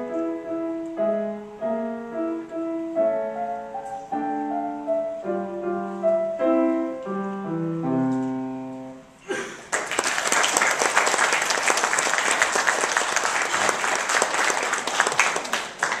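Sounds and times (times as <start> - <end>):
grand piano notes ringing: 0.0 - 9.2
audience applause: 9.6 - 16.0.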